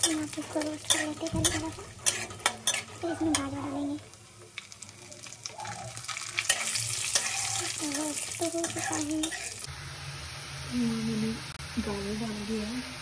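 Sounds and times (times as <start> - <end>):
spatula scraping pan: 0.0 - 4.0, 6.1 - 9.7
ghee sizzling: 0.0 - 13.0.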